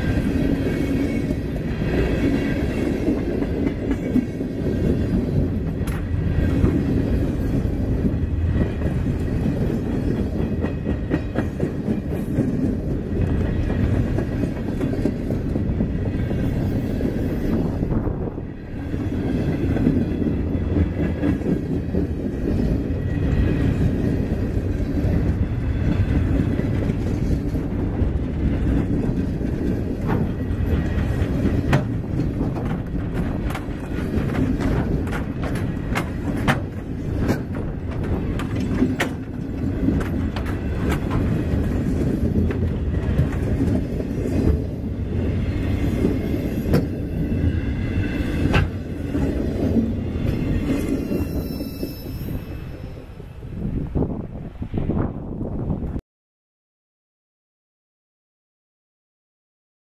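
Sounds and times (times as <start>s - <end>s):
freight train rumbling past: 0.0s - 56.0s
wheels clicking over rail joints: 19.0s - 47.2s, 48.0s - 51.4s.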